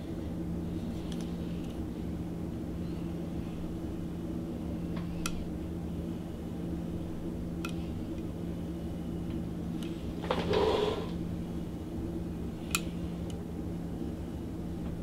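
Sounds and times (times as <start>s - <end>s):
faint handling clicks: 5.2s - 5.4s, 12.6s - 13.4s.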